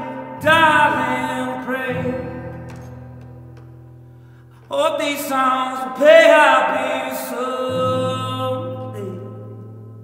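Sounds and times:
acoustic guitar: 0.0s - 10.0s
man singing long held notes: 4.7s - 9.5s.

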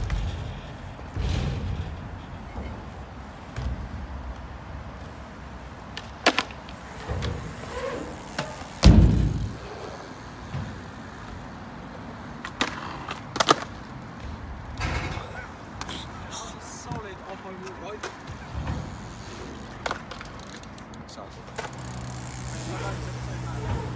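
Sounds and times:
bike clicks and knocks: 0.0s - 23.9s
bike tyres rolling on ramps: 0.0s - 23.9s
heavy thump: 8.8s - 9.5s.

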